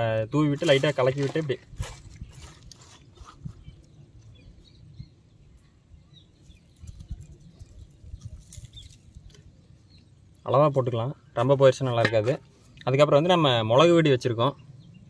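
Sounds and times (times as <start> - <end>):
faint bird chirps: 1.9 - 11.5.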